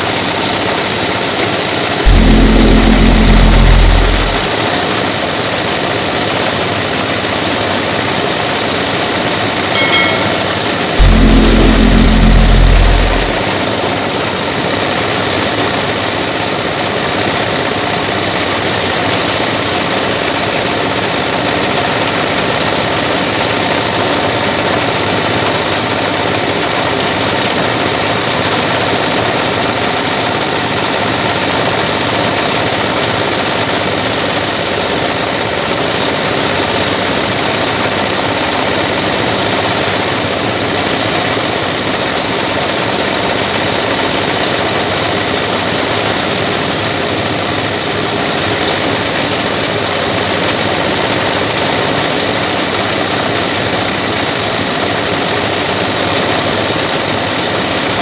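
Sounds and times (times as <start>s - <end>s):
thresher diesel engine running: 0.0s - 58.0s
loud low rumble: 2.0s - 4.9s, 11.0s - 13.9s.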